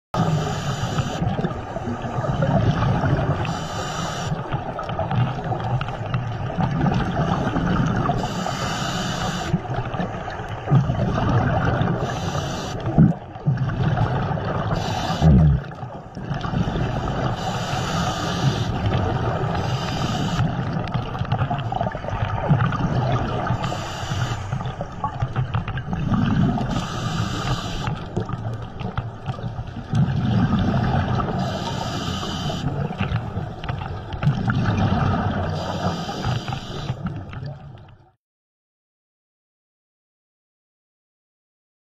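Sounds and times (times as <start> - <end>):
rush of bubbles and water: 0.2 - 38.2
scuba regulator hissing: 17.4 - 18.8, 26.7 - 27.9, 31.4 - 32.7.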